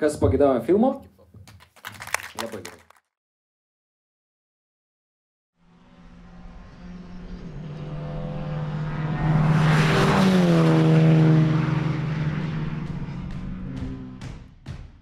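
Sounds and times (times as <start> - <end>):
race car passing by: 5.6 - 14.2.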